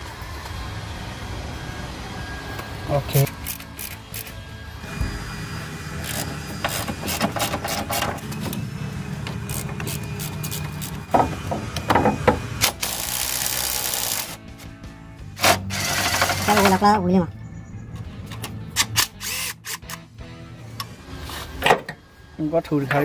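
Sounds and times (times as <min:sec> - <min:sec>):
background music: 0:09.5 - 0:23.0.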